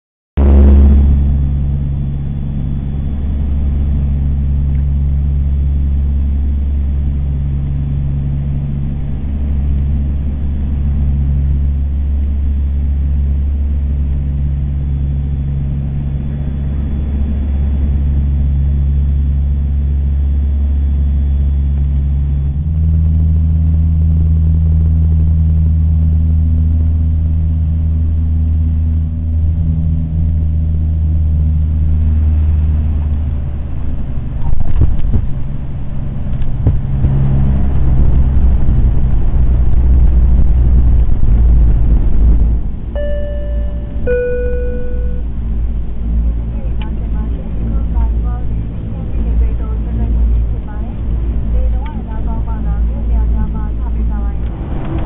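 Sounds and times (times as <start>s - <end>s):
pulsing tone: 0.4s - 34.6s, 41.1s - 45.9s
aircraft engines droning: 0.4s - 55.0s.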